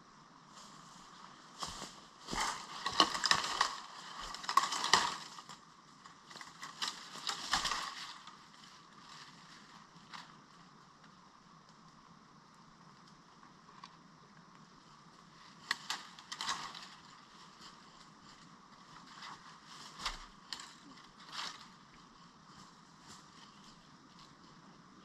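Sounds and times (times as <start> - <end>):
dry leaves and twigs crunching: 0.5 - 10.4, 15.2 - 24.6.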